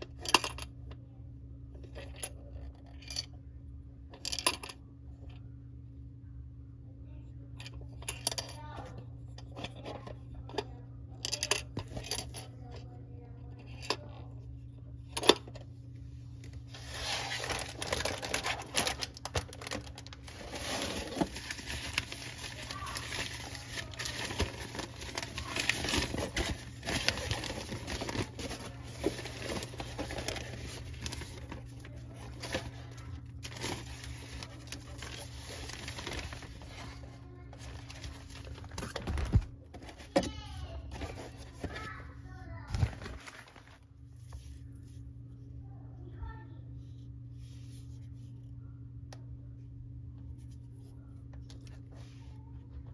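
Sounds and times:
nylon bag rustling: 0:16.7 - 0:32.8, 0:33.4 - 0:39.4, 0:42.7 - 0:43.8.

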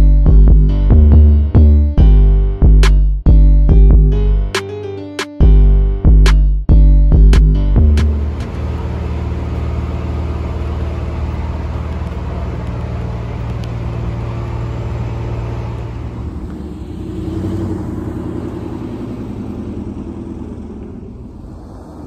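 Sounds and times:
truck driving along road: 0:07.1 - 0:22.0
vehicle engine idling: 0:07.1 - 0:22.0.

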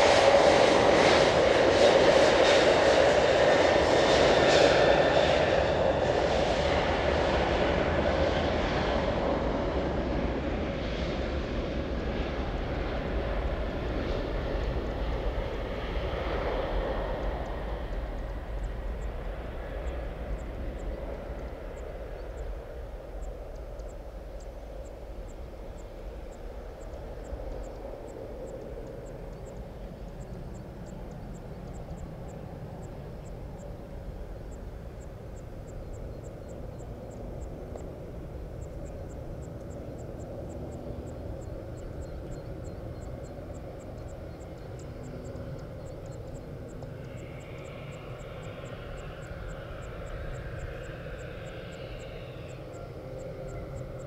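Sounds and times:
airliner hum and low rumble: 0:00.0 - 0:54.0
faint fast high ticking: 0:17.1 - 0:54.0.

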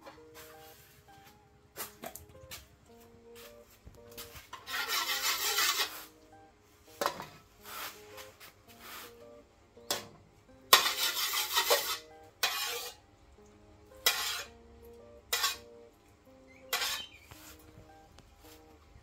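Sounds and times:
metal ladle scraping a wok: 0:04.5 - 0:06.1, 0:10.7 - 0:13.0, 0:14.0 - 0:14.6, 0:15.3 - 0:15.7, 0:16.7 - 0:17.3.

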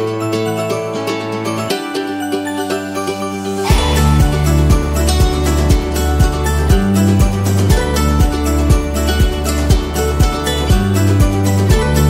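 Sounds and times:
upbeat background music: 0:00.0 - 0:12.0
bass line and kick drum: 0:03.6 - 0:12.0.

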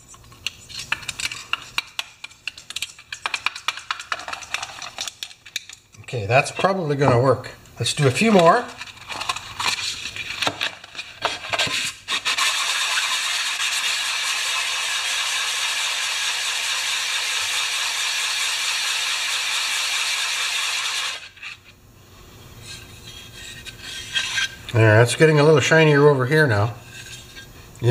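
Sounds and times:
metal rasping on sandpaper: 0:11.5 - 0:20.7, 0:22.6 - 0:24.6
metal knocks and scrapes: 0:22.6 - 0:24.7.

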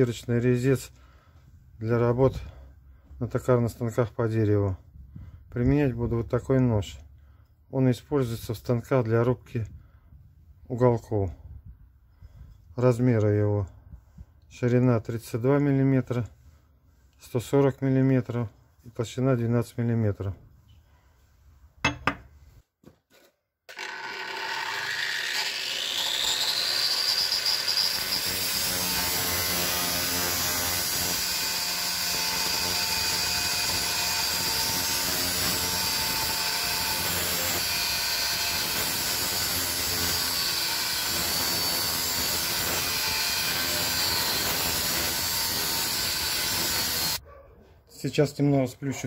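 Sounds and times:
angle grinder grinding steel: 0:23.7 - 0:47.2.

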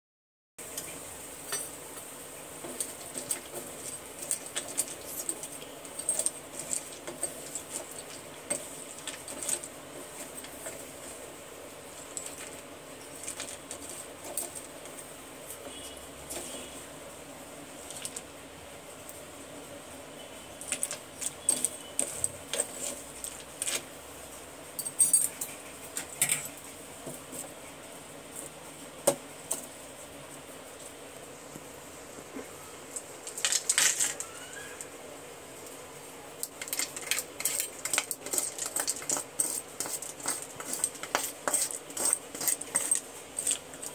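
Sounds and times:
spoon clinking among pencil sticks: 0:02.8 - 0:09.7, 0:20.6 - 0:23.4, 0:36.4 - 0:43.9
slate pieces clinking in shell: 0:36.4 - 0:43.9.

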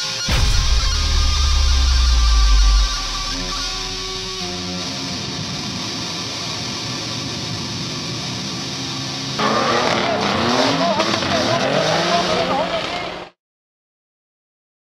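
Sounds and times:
guitar music: 0:00.1 - 0:05.8.

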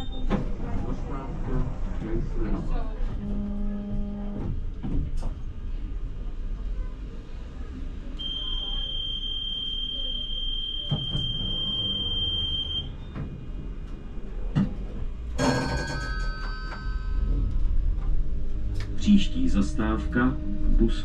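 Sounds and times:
tram rumble: 0:00.0 - 0:21.0
passenger information chime: 0:15.4 - 0:17.5.

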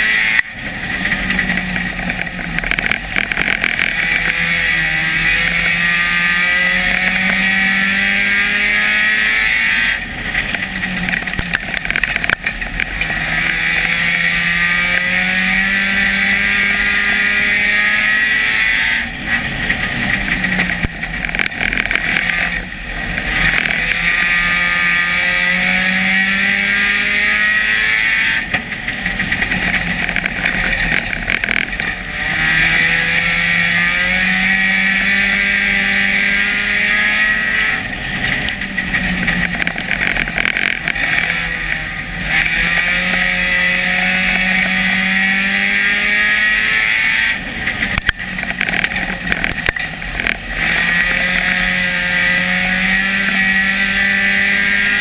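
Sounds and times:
race car engine revving: 0:00.0 - 0:55.0
wind and road noise: 0:00.0 - 0:55.0.

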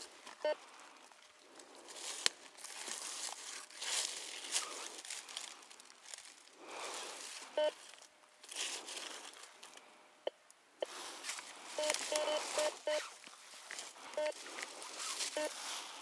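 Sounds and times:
dry leaves crunching: 0:00.1 - 0:09.8, 0:10.9 - 0:16.0
metal detector beeping: 0:07.6 - 0:07.8, 0:11.8 - 0:13.1, 0:14.2 - 0:14.4, 0:15.3 - 0:15.6.

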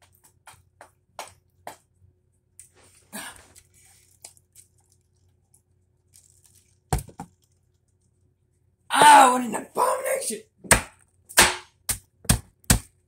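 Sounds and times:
lettuce crunching: 0:02.6 - 0:08.2.

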